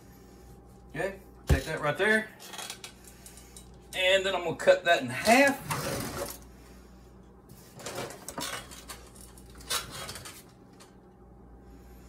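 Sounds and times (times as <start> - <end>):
metal utensils clattering: 7.8 - 10.5.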